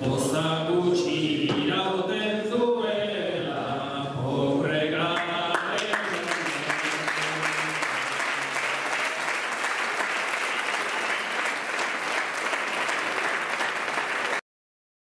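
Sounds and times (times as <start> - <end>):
audience applauding: 5.2 - 14.4.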